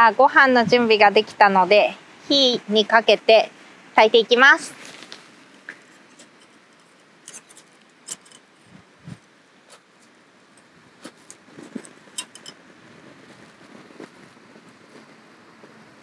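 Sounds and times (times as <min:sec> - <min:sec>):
metal cups tapping on stove: 0:12.2 - 0:12.6.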